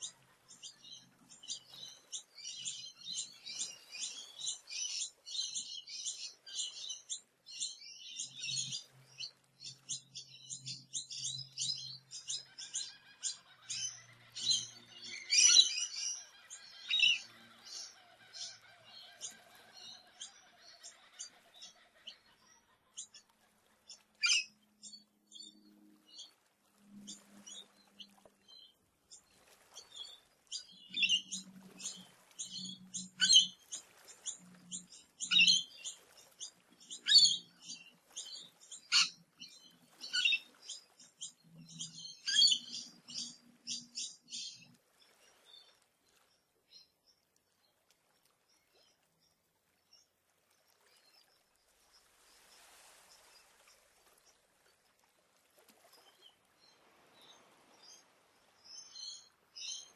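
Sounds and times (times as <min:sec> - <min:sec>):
birds chirping: 0:00.0 - 0:23.2, 0:27.0 - 0:45.7.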